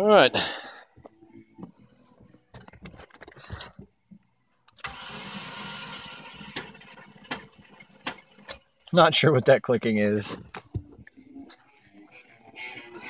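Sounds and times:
starter cranking engine: 4.8s - 8.6s.

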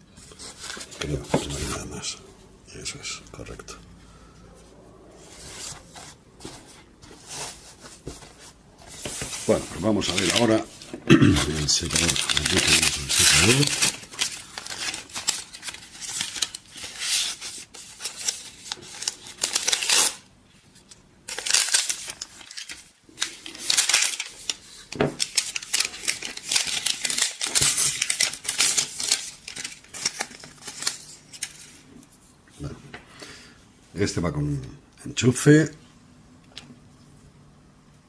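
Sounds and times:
paper wrap rustling: 0.2s - 2.2s, 5.2s - 32.1s.

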